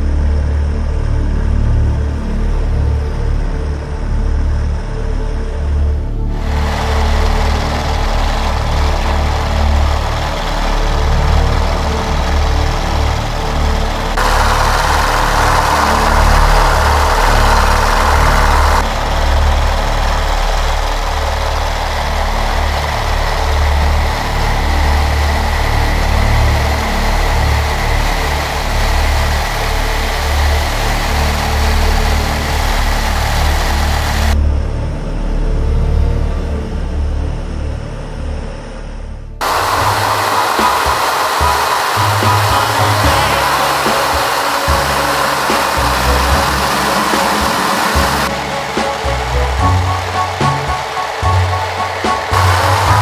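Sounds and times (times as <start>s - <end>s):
aircraft piston engine drone: 0.0s - 34.5s, 39.4s - 53.0s
rushing air: 6.3s - 34.4s, 39.4s - 53.0s.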